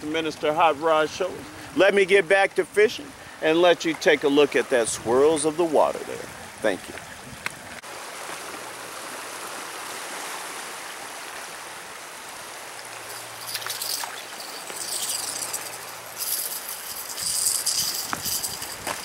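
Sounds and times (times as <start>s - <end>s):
water rushing in a canal: 0.0s - 19.0s
scratchy rustling: 13.1s - 19.0s.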